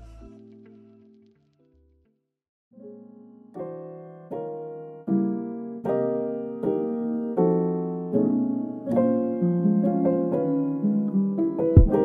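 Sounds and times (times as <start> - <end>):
soft keyboard chords: 2.9 - 12.0.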